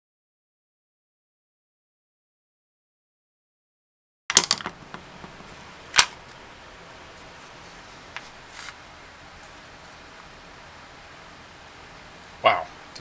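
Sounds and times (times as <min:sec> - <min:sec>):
hard plastic parts clicking: 0:04.3 - 0:06.2.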